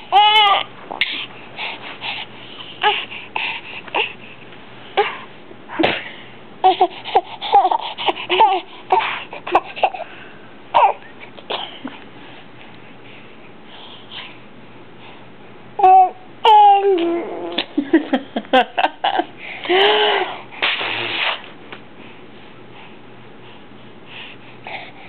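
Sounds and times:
baby babbling and laughing: 0:00.0 - 0:01.2, 0:06.6 - 0:10.1, 0:10.8 - 0:11.1, 0:15.8 - 0:17.8.

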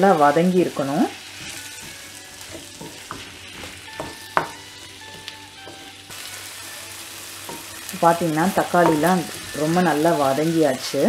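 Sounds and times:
vegetables sizzling in oil: 0:00.0 - 0:11.0
wooden spatula scraping pan: 0:01.1 - 0:06.1.

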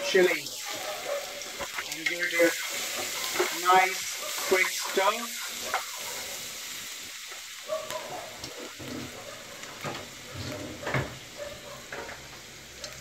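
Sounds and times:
garlic sizzling in a frying pan: 0:00.0 - 0:13.0
wooden spatula scraping a pan: 0:08.4 - 0:11.2.

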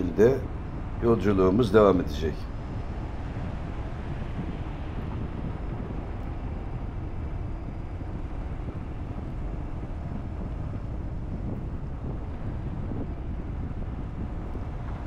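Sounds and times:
car driving rumble: 0:00.0 - 0:15.0.

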